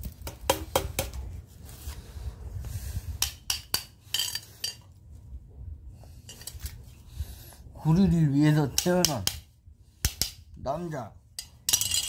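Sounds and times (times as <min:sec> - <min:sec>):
metal rod clinking and scraping: 0:03.2 - 0:05.0, 0:06.2 - 0:06.8, 0:11.4 - 0:12.0.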